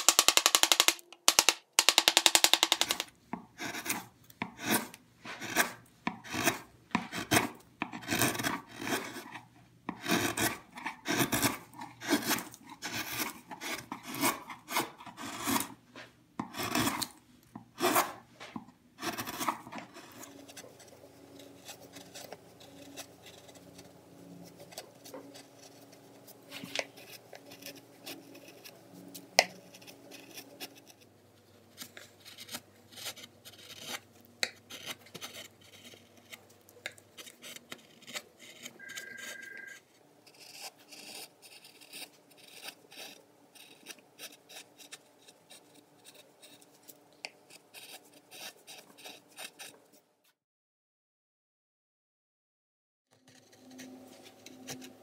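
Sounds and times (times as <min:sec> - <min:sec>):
chisel clicks: 0:00.0 - 0:03.1
chisel scraping wood: 0:00.1 - 0:50.0, 0:53.2 - 0:55.0.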